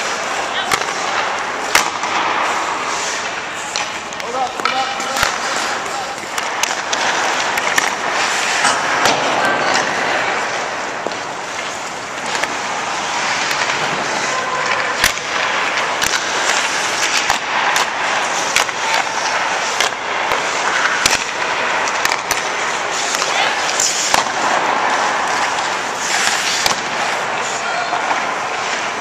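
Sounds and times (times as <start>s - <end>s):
hockey sticks striking pucks: 0.0s - 29.0s
ice skate blades scraping ice: 0.0s - 29.0s
pucks hitting pads and boards: 0.0s - 29.0s.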